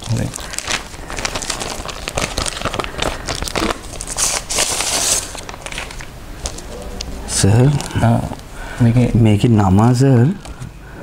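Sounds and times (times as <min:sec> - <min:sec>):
envelope being torn open: 0:00.0 - 0:08.0
paper crinkling and rustling: 0:00.0 - 0:08.5.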